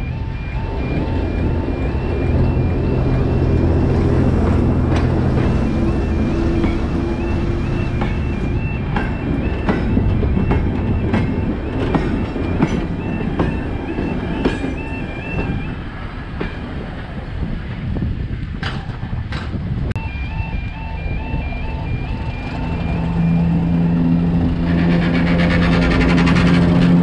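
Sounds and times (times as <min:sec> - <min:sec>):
high electronic two-tone alarm: 0:00.0 - 0:15.6, 0:20.0 - 0:24.6
low train rumble: 0:00.0 - 0:27.0
train wheels clicking over rail joints: 0:02.3 - 0:17.2, 0:18.4 - 0:19.7, 0:22.4 - 0:27.0.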